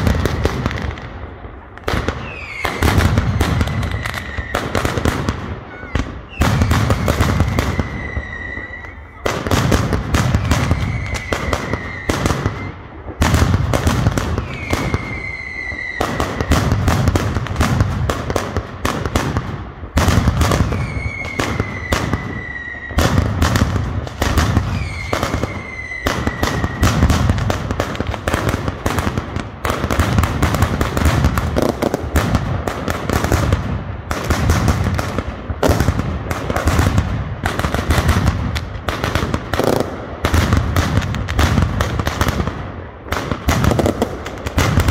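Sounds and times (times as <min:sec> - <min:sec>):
whistling fireworks: 0:00.0 - 0:44.9
firecracker bangs barrage: 0:01.8 - 0:44.9.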